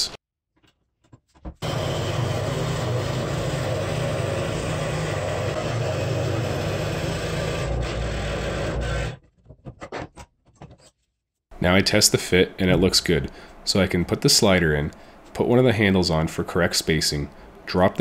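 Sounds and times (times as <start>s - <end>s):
scroll saw cutting board: 1.6s - 9.2s.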